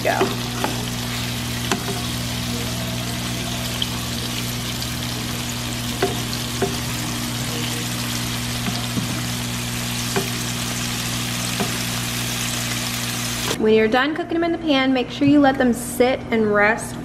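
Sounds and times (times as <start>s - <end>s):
steaks sizzling in a pan: 0.0s - 13.6s.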